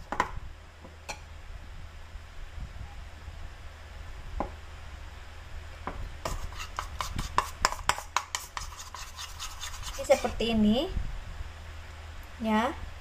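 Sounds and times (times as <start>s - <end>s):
steady low hum: 0.0s - 13.0s
spoon scraping plastic bowl: 6.3s - 10.4s.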